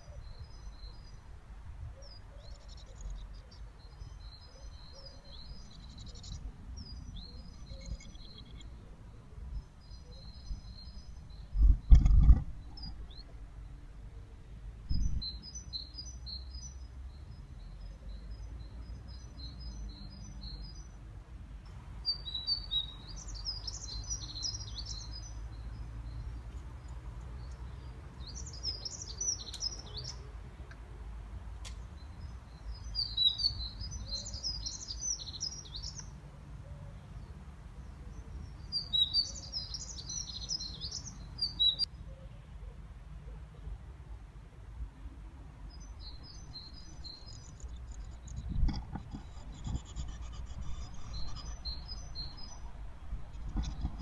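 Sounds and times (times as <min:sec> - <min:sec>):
birds twittering: 0:02.0 - 0:13.8, 0:32.0 - 0:42.3, 0:45.7 - 0:54.0.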